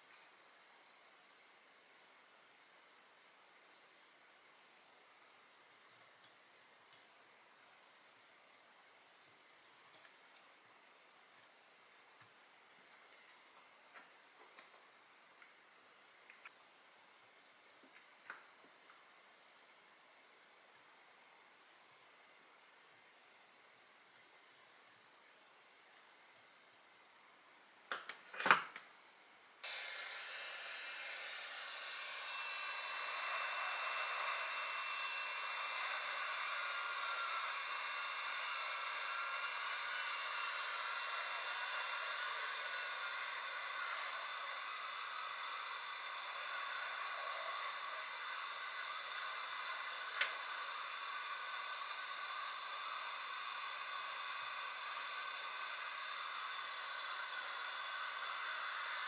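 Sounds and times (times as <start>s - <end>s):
motor-driven blower running: 29.7s - 59.0s.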